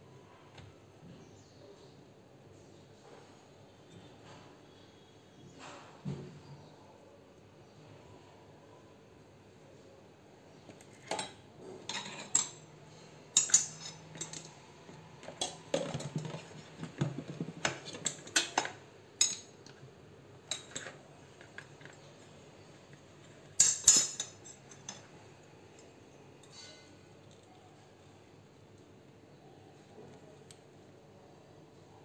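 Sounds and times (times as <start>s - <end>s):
metal spoons clinking and scraping: 10.8s - 14.6s, 17.8s - 19.5s, 20.5s - 22.0s, 23.6s - 25.1s, 26.4s - 27.0s.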